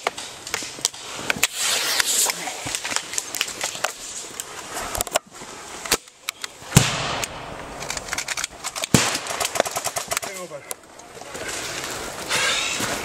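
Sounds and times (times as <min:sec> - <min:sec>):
loud cracks: 0:00.0 - 0:12.9
airsoft guns firing: 0:06.7 - 0:10.6.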